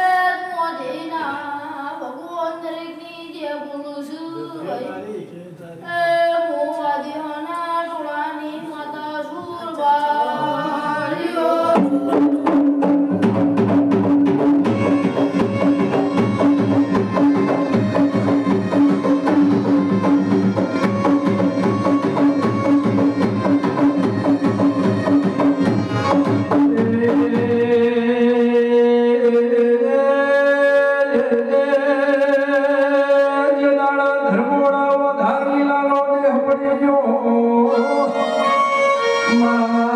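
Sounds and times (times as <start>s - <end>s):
person singing: 5.9s - 13.7s, 26.2s - 39.9s
fast dense drumming: 11.8s - 27.6s.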